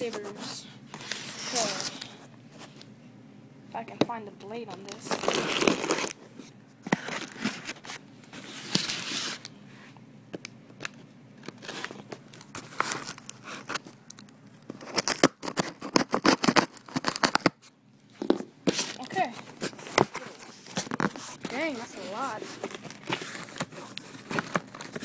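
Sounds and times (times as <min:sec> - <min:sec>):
cardboard ripping and rustling: 0:00.0 - 0:02.2, 0:04.9 - 0:06.2, 0:06.9 - 0:09.5, 0:11.4 - 0:13.9, 0:14.7 - 0:17.6, 0:18.2 - 0:25.0.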